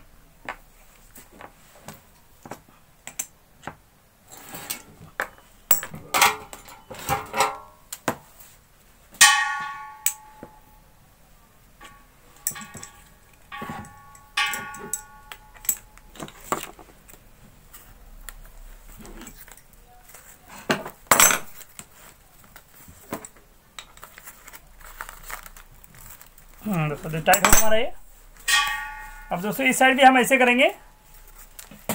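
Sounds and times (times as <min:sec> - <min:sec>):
ringing metallic clangs: 0:09.2 - 0:10.8, 0:11.8 - 0:16.5, 0:27.1 - 0:29.8
spanners clinking on metal fittings: 0:11.8 - 0:16.7, 0:27.2 - 0:29.4.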